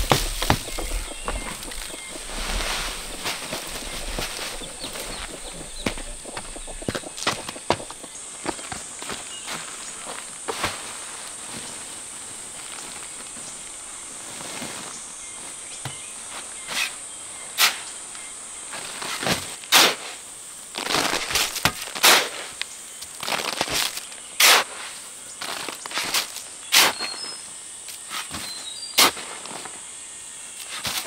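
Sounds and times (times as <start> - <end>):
shovel scraping damp sand: 0.0 - 7.9, 19.1 - 20.2, 20.8 - 22.6, 24.4 - 27.2, 28.0 - 29.7, 30.6 - 31.0
insects droning: 0.0 - 31.0.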